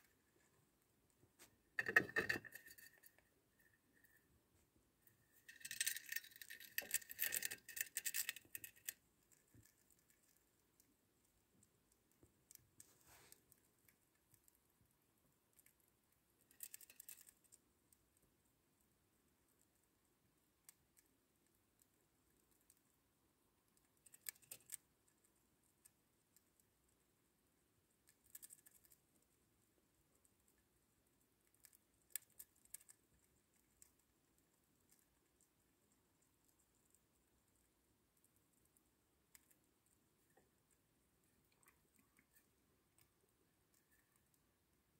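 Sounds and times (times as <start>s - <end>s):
hamster crunching food: 0.0s - 44.9s
hamster chewing crunching clicks: 23.6s - 44.9s.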